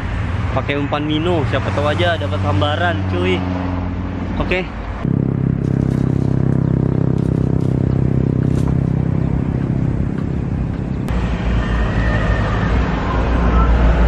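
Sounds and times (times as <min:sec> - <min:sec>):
rough low engine rumble: 0:00.0 - 0:11.4
engine running steadily: 0:04.0 - 0:11.4.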